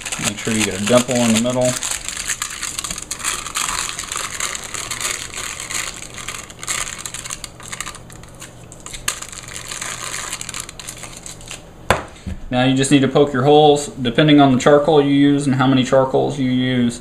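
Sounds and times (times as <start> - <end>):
aluminium foil crinkling: 0.0 - 11.7.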